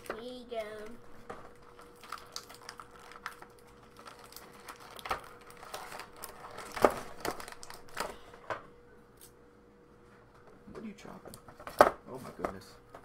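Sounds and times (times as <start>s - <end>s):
plastic packaging crinkling: 1.3s - 8.3s.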